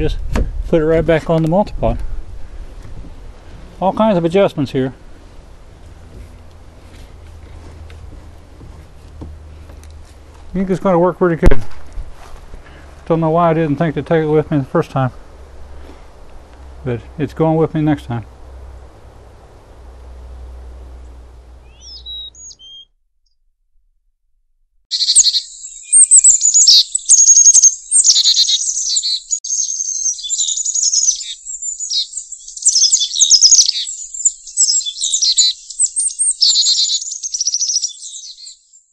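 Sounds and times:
faint outdoor background noise: 0.0 - 22.8, 24.9 - 38.8
songbird chirps and trills: 16.4 - 22.9, 24.9 - 38.9.

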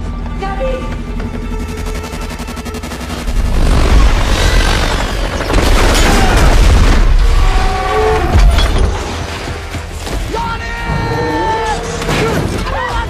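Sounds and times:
bursts of gunfire: 2.0 - 7.5.

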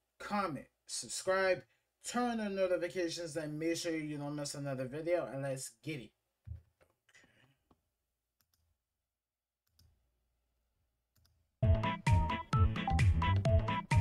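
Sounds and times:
music with steady beat: 11.6 - 14.0.

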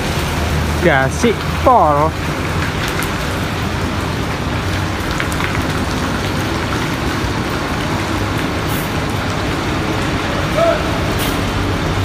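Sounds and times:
rain on wet pavement: 0.0 - 12.0
bus engine driving past: 5.7 - 12.0.

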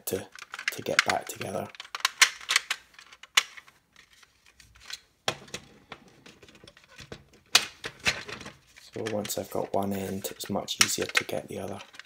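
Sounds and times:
plastic clicks and knocks: 0.3 - 3.6, 10.8 - 12.0.

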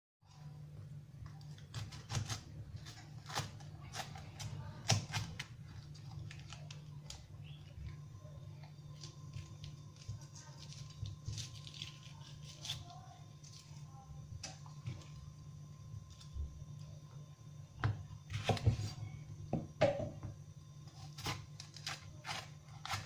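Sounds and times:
knife slicing peppers: 1.6 - 5.5, 20.9 - 23.0
knife knocking on cutting board: 19.5 - 20.3.

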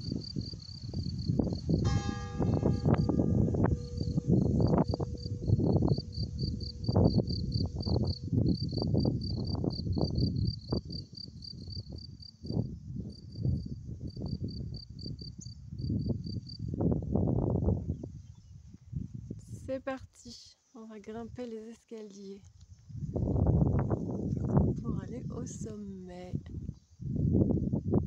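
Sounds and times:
crickets chirping: 0.0 - 1.9, 2.5 - 18.5
wind buffeting microphone: 0.0 - 19.7, 22.8 - 28.0.

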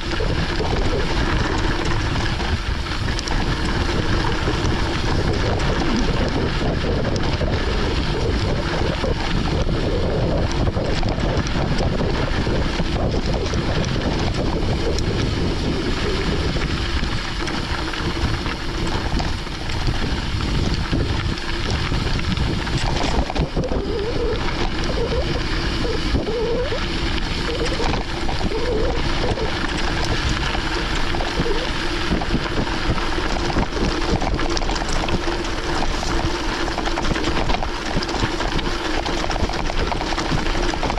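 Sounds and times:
bike tyres on gravel: 0.0 - 40.9
wind on microphone: 0.0 - 40.9.

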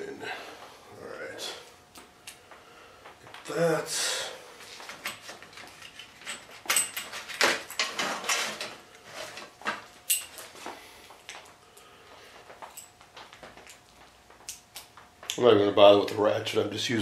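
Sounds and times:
metal sockets clinking and rattling: 5.0 - 8.6.

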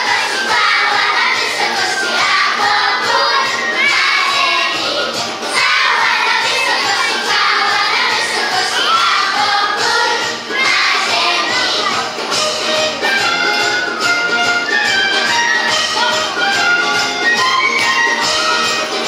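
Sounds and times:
children singing loudly: 0.0 - 13.9
backing music: 0.0 - 19.0.

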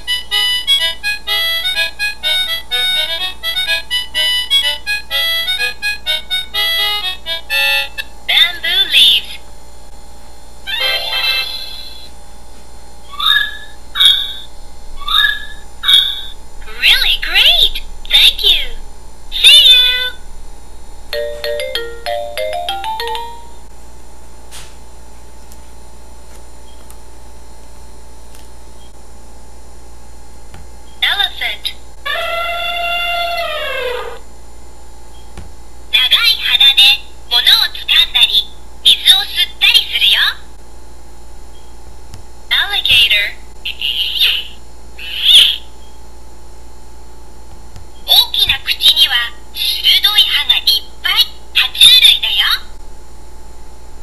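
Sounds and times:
electronic toy melody: 0.1 - 8.0, 21.2 - 23.7
electronic chime jingle: 21.2 - 23.7.

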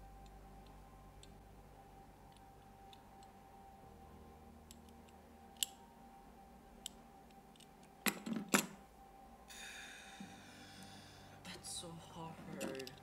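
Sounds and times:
metal padlock and key clicking: 4.7 - 5.8, 6.8 - 8.8, 12.6 - 13.0.

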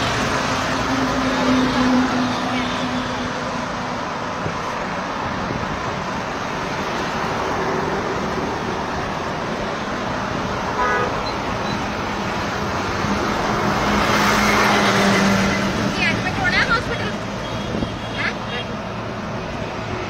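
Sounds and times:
street traffic: 0.0 - 20.0
vehicle engine: 0.0 - 20.0
vehicle horn toot: 10.8 - 11.4.

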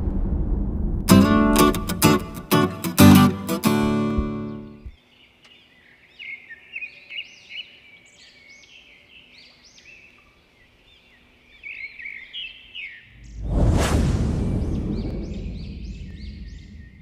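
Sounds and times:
small birds chirping: 4.3 - 13.4, 14.7 - 17.0.

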